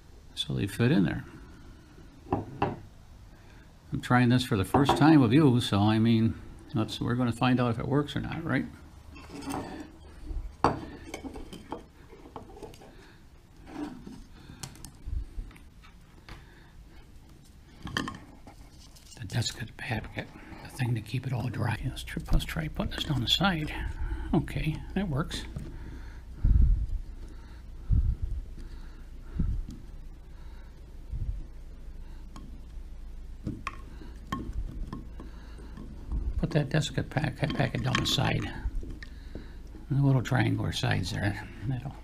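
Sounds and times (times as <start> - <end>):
dull low thumps: 26.4 - 27.2, 27.8 - 28.6, 29.3 - 29.8.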